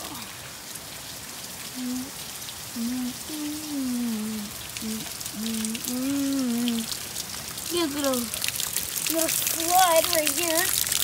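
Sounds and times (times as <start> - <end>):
heavy rain dripping off roof: 0.0 - 11.0
person humming: 1.8 - 2.2, 2.8 - 7.0.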